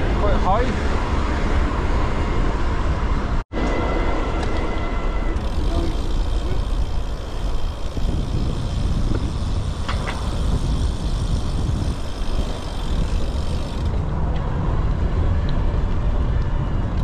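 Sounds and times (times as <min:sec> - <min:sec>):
wind buffeting microphone: 0:04.2 - 0:17.0.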